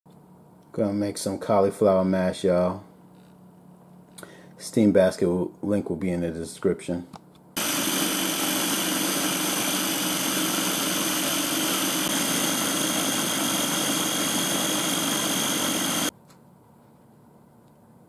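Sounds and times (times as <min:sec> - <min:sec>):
food chopper motor whining: 0:07.6 - 0:16.1.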